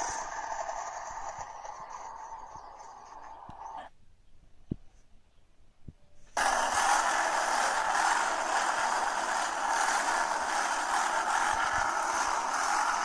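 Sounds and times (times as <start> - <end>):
motorcycle engines through small speaker: 0.0 - 3.9, 6.4 - 13.0.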